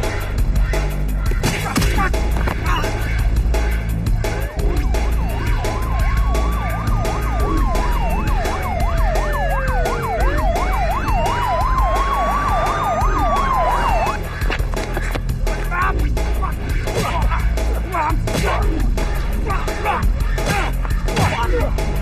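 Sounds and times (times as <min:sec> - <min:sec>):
background music with steady beat: 0:00.0 - 0:22.0
police siren wailing: 0:04.2 - 0:14.3
police siren yelping: 0:04.3 - 0:14.2.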